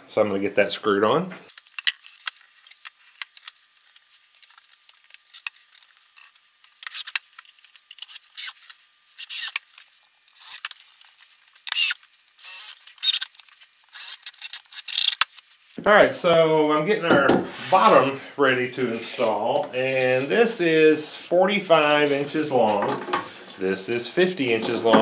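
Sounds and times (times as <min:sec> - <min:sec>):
cordless drill screwing: 0:06.8 - 0:10.9, 0:11.6 - 0:15.3.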